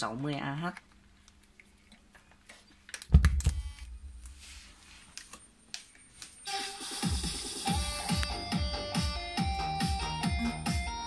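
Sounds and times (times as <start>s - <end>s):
music with steady beat: 6.4s - 11.0s.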